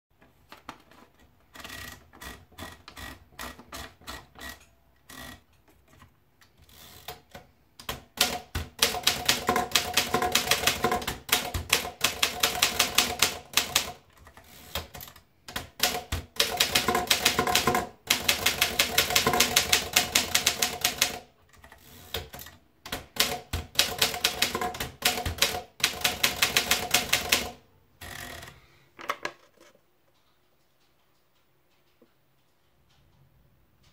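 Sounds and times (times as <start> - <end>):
paper feed clicks: 7.0 - 28.6
typewriter typebar strikes: 7.8 - 14.0, 14.8 - 21.2, 22.2 - 27.6.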